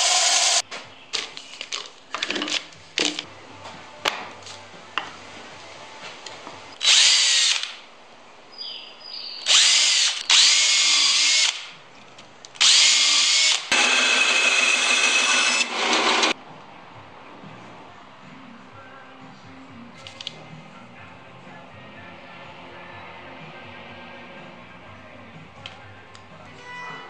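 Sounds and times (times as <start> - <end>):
drill whining into wood: 0.0 - 0.6, 6.8 - 7.7, 9.5 - 11.6, 12.6 - 16.4.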